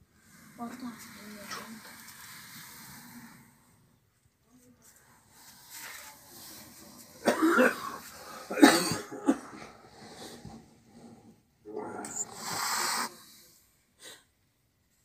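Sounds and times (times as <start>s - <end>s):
cat coughing: 7.2s - 9.6s.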